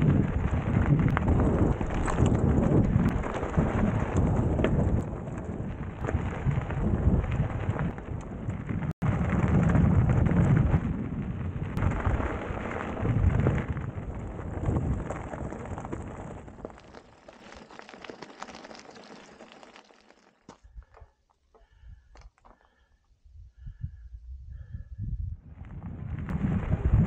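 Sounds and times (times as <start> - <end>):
wind buffeting microphone: 0.0 - 16.7, 23.3 - 27.0
tyres crunching on gravel: 0.0 - 22.7.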